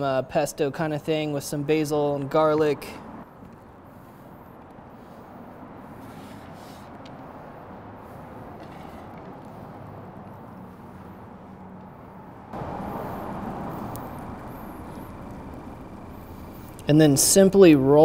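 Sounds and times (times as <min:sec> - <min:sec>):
steady low background noise: 0:09.8 - 0:18.0.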